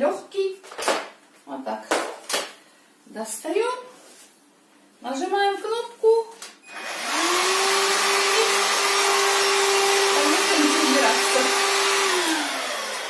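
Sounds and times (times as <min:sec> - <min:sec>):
vacuum cleaner motor whining: 0:06.7 - 0:13.0.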